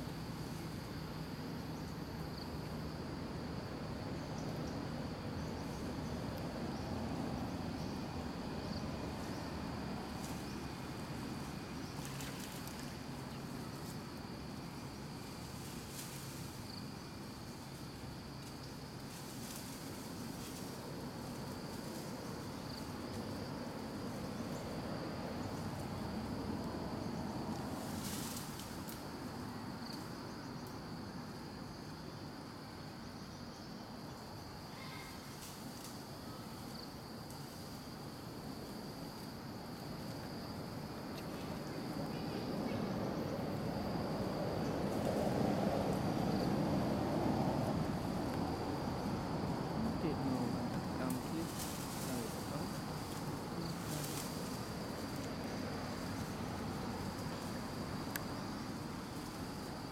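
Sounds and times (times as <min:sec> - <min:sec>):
insects droning: 0:00.0 - 0:59.9
low outdoor rumble: 0:00.0 - 0:59.9
faint ticks: 0:58.1 - 0:58.3.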